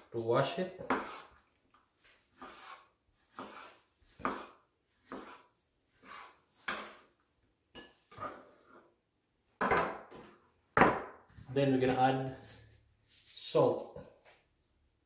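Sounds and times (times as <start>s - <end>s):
knife cutting on wooden board: 0.8s - 1.4s, 2.3s - 7.1s.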